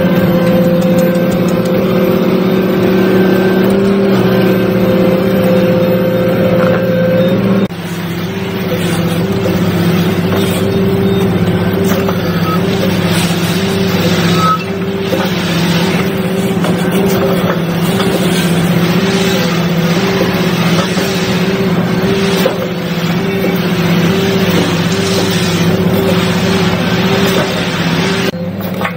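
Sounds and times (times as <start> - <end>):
diesel engine running: 0.0 - 28.9
engine hum with pulsing throb: 0.0 - 28.9.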